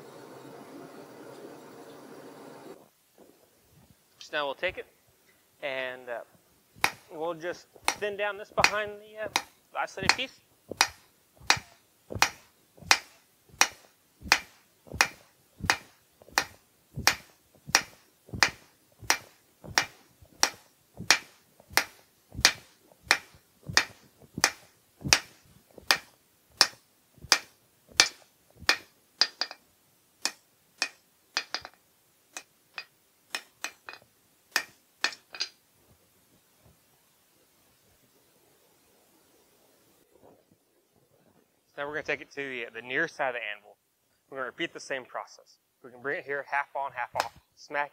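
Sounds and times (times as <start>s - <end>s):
hammer striking steel on anvil: 6.8s - 7.1s, 7.8s - 29.6s, 30.2s - 31.8s, 34.6s - 35.6s.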